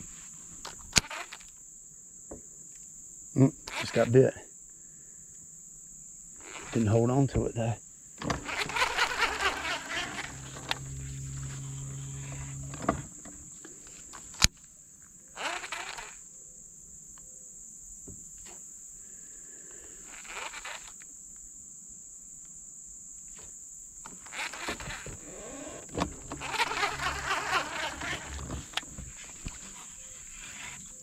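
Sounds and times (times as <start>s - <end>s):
insects buzzing: 0.0s - 31.0s
rattling: 8.2s - 13.5s, 24.2s - 30.8s
low mechanical hum: 8.3s - 13.7s, 24.4s - 29.6s.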